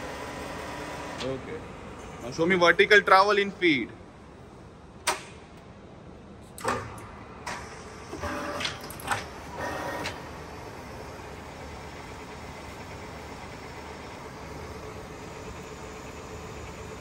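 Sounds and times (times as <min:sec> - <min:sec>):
milling machine running: 0:08.1 - 0:17.0.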